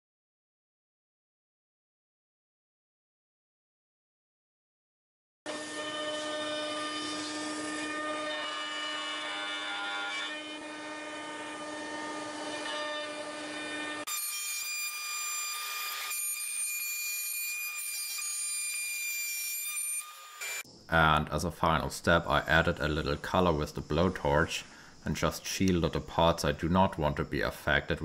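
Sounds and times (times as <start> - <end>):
router spindle whining cutting wood: 5.5 - 18.9.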